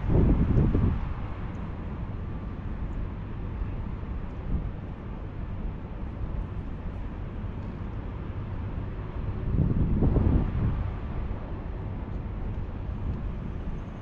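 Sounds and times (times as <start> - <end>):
wind buffeting microphone: 0.0 - 2.2, 9.2 - 14.0.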